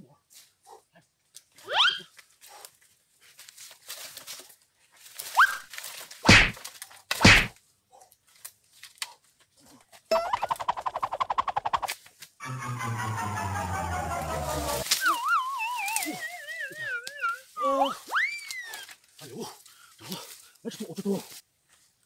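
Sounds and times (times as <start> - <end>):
footsteps and brush rustling: 0.2 - 10.9, 14.3 - 22.0
heavy thumps: 6.3 - 6.6, 7.2 - 7.5
music: 12.4 - 14.8.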